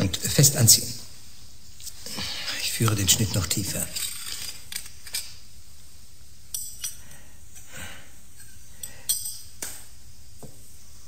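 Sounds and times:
low hiss: 0.0 - 11.0
metal instruments clinking: 8.4 - 9.6.

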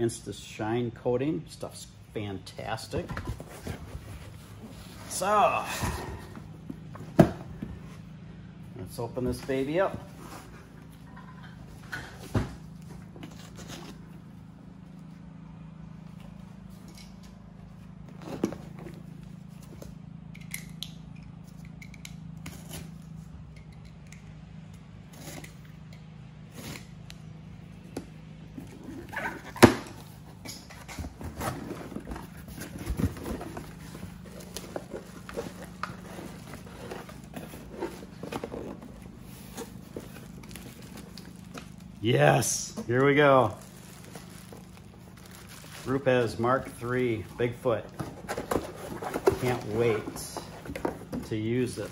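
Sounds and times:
steady low hum: 0.0 - 51.9
cardboard scraping and rustling: 2.9 - 8.1, 9.2 - 11.0, 11.7 - 14.3, 18.0 - 19.9, 28.5 - 51.9
plastic bag crinkling: 43.4 - 46.1.

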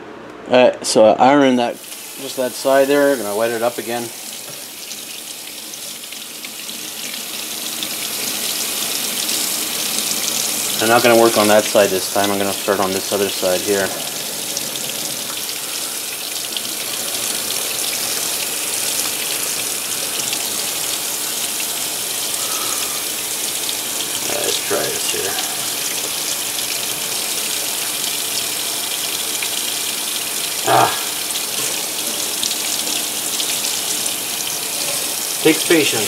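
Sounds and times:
brief vocal sounds: 30.6 - 31.2.

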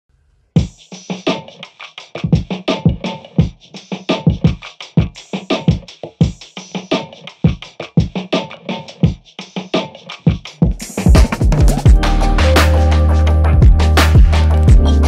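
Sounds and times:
background music with drum machine: 0.6 - 15.0.

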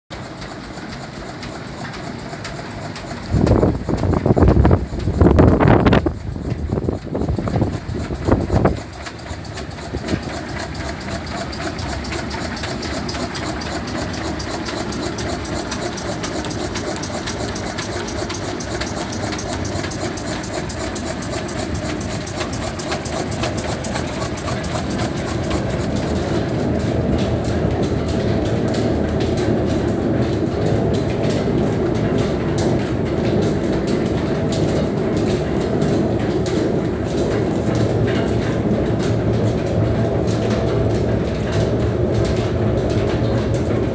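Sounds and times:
wind buffets on microphone: 3.3 - 8.9.

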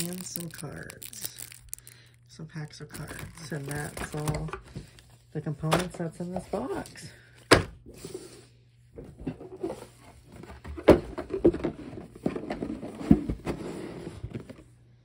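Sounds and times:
cards and paper rustling: 0.0 - 2.2, 2.8 - 5.2.

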